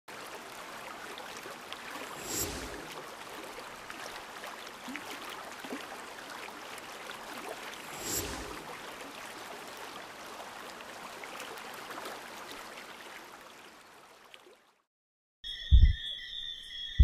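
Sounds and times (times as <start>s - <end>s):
small water splashes: 0.1s - 14.8s
water whoosh: 1.8s - 4.4s, 7.2s - 9.4s.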